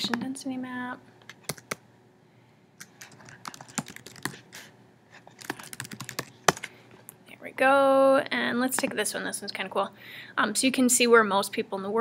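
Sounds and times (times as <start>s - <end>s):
keyboard typing: 1.4s - 1.8s, 2.8s - 4.4s, 5.4s - 6.7s.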